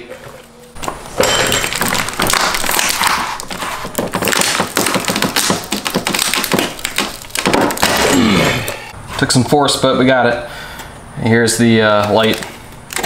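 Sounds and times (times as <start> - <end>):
tape crinkling and crackling: 0.2 - 8.8, 11.8 - 13.0.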